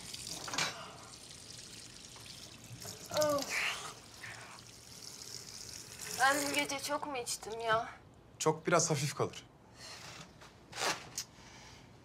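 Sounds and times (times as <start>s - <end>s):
tap water trickling: 0.0s - 6.8s.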